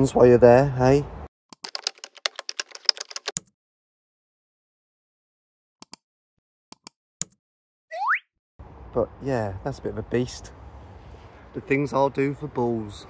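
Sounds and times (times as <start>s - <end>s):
computer keyboard typing: 1.6s - 3.5s.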